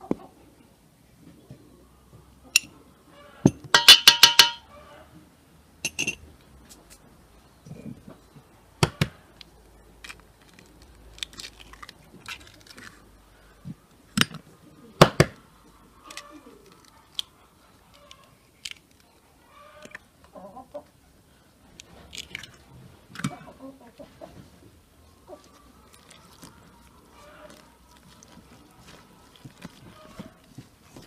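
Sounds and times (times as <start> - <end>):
utensils clinking on a metal bowl: 3.5 - 4.6, 5.9 - 6.2
egg cracked on a bowl: 3.8 - 4.6.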